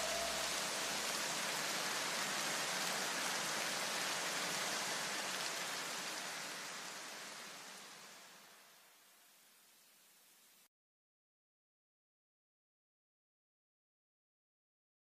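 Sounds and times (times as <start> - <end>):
steady rushing hiss: 0.0 - 10.7.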